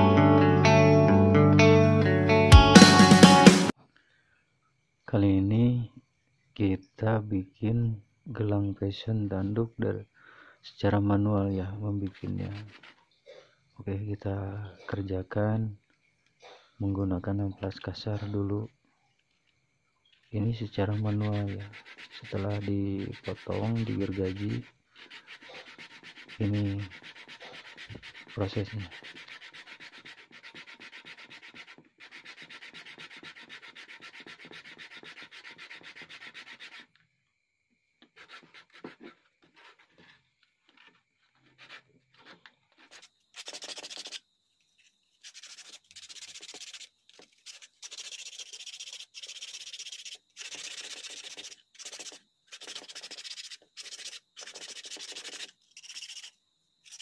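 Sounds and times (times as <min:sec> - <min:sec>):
sanding horn on sandpaper: 0:12.0 - 0:13.0, 0:20.8 - 0:36.9, 0:38.1 - 0:40.2, 0:40.8 - 0:44.2, 0:45.2 - 0:57.0.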